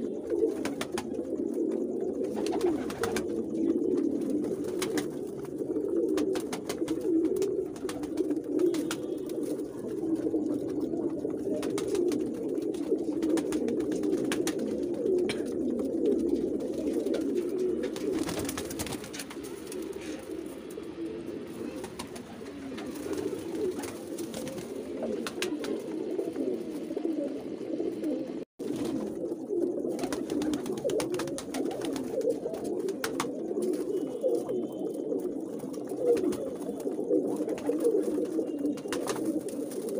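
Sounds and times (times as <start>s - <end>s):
pigeons cooing: 0.0s - 39.9s.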